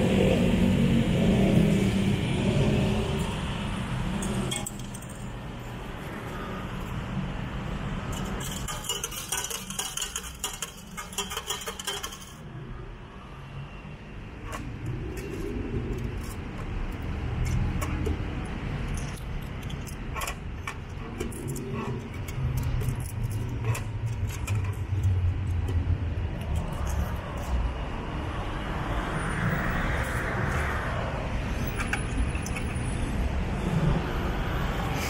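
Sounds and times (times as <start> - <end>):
coins dropping into metal tray: 8.2 - 12.4.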